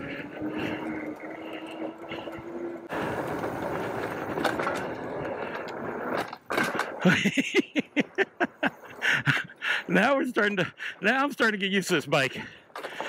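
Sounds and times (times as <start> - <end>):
electric motor hum: 0.0 - 4.3
wind and tyre noise: 0.0 - 13.0.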